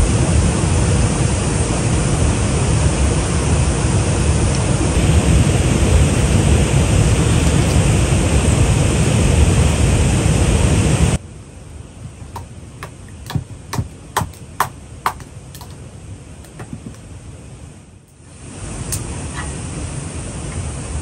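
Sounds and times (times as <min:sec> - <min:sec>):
loud rushing noise: 0:04.9 - 0:11.2
blade chopping kindling wood: 0:12.4 - 0:15.8, 0:16.5 - 0:17.0.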